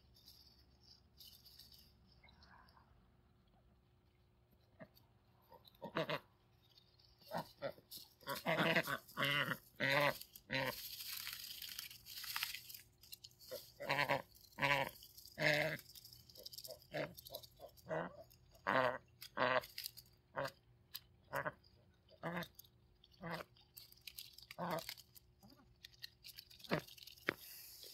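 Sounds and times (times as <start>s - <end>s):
crinkly plastic grass rustling: 0.0s - 2.8s, 4.6s - 27.9s
ducks quacking: 4.8s - 6.3s, 7.2s - 10.8s, 13.5s - 15.8s, 16.7s - 19.7s, 21.2s - 23.5s.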